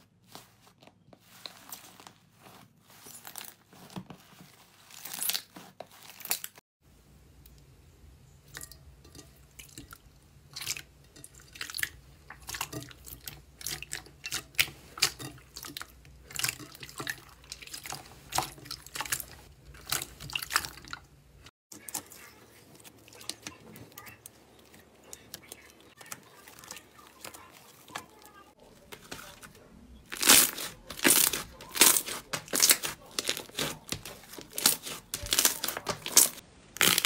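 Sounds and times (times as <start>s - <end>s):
hands squishing slime: 10.5s - 21.1s, 21.8s - 37.0s.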